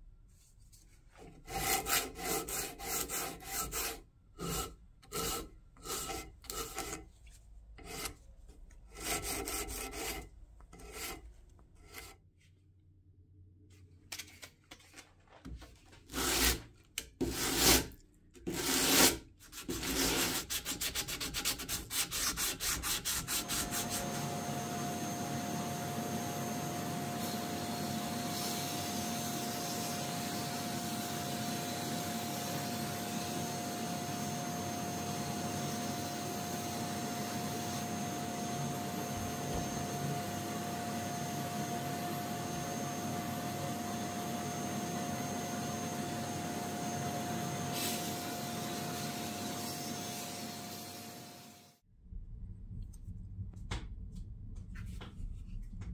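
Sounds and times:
sanding metal by hand: 1.4s - 7.0s, 7.8s - 8.2s, 8.9s - 11.2s, 18.5s - 24.0s.

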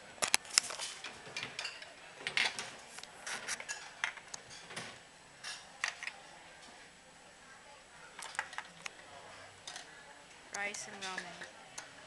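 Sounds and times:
utensils clinking against dishes: 0.8s - 2.8s, 10.7s - 11.6s.

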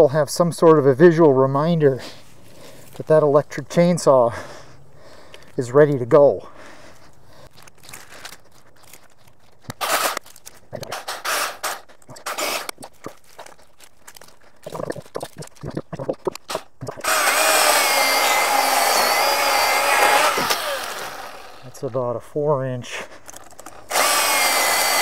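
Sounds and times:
rustles and snaps: 7.0s - 17.1s
electric chainsaw cutting wood: 9.7s - 10.2s, 10.9s - 12.8s, 17.0s - 21.9s, 23.8s - 25.0s.

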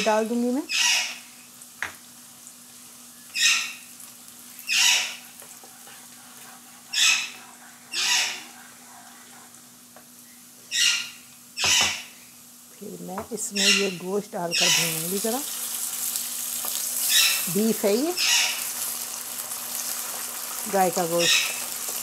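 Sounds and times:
onions sizzling in oil: 0.0s - 10.6s, 11.4s - 22.0s
spatula scraping a pan: 4.8s - 9.6s.

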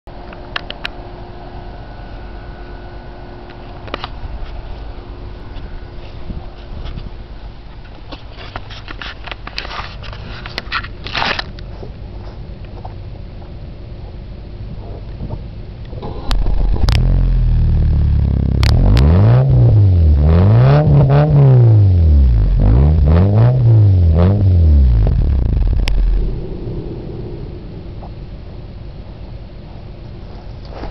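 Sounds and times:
car engine idling: 15.6s - 20.3s, 21.8s - 30.4s
car engine revving: 16.0s - 29.0s.

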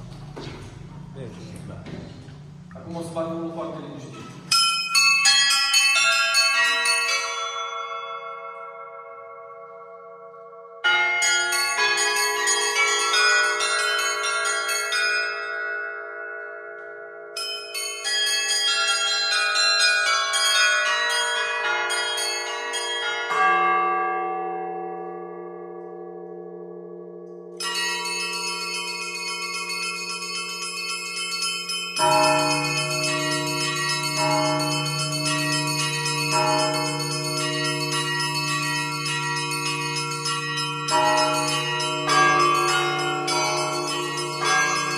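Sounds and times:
larger bells ringing: 2.8s - 44.9s
small treble bells ringing: 4.0s - 10.0s, 10.8s - 25.8s, 27.6s - 44.9s
deep bell ringing: 17.4s - 44.9s.

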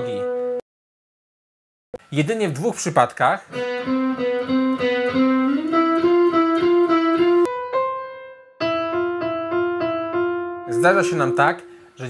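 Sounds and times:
electric guitar picking notes: 3.5s - 12.0s
keyboard playing single notes: 3.6s - 12.0s.

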